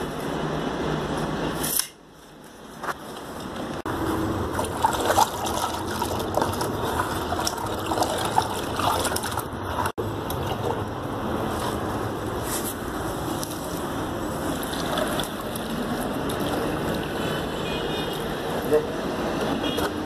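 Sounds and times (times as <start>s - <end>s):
wet cement stirred in bucket: 4.0s - 12.8s, 13.4s - 17.3s.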